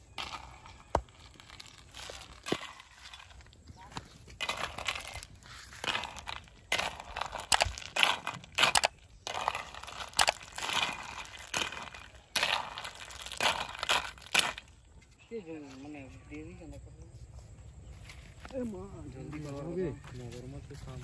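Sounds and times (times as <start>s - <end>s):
snail shells rattling: 0.0s - 15.0s.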